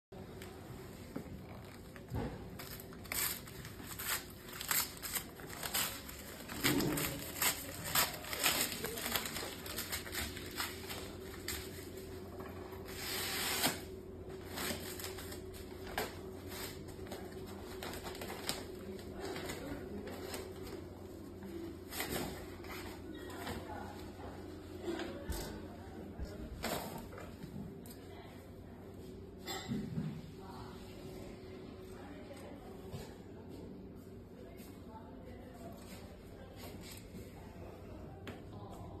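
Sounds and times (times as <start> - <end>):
paper wrapper crinkling: 1.6 - 12.0, 14.4 - 20.8.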